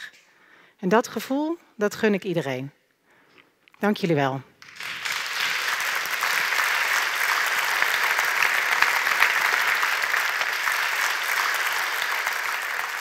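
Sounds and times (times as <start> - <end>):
large audience applauding: 4.6 - 13.0.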